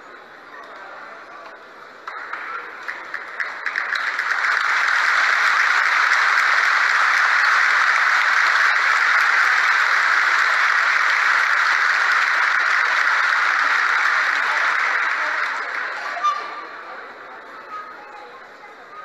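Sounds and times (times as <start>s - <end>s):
crowd applauding: 2.0s - 16.8s.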